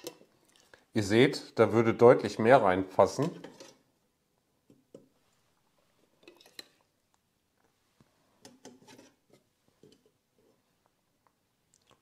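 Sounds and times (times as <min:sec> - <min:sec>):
spatula scraping a plate: 0:03.1 - 0:03.8, 0:08.4 - 0:10.1.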